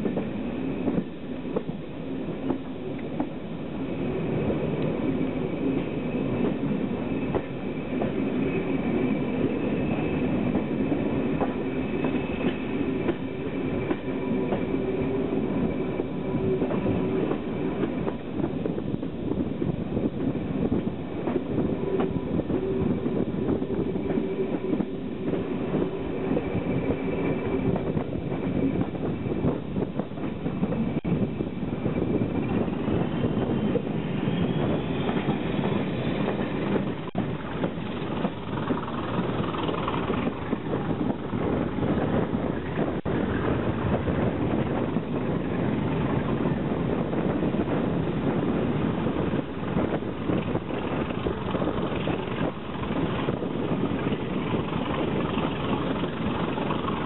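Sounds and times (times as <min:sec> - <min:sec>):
wheels clicking over rail joints: 0:33.5 - 0:44.9, 0:49.1 - 0:57.0.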